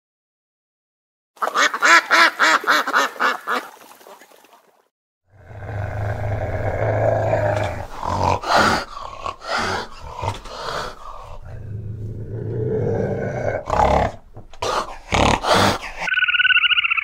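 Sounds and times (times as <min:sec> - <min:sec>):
animal growling: 0:05.3 - 0:16.1.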